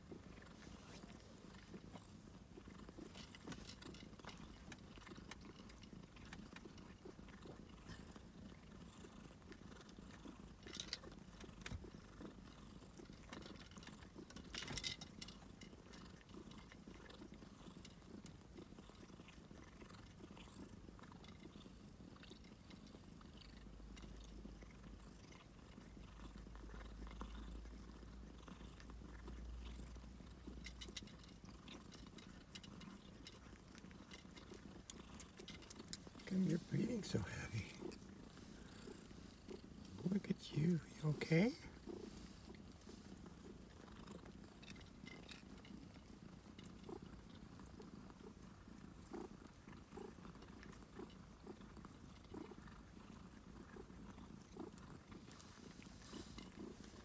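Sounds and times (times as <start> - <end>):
cat purring: 0.0 - 57.0.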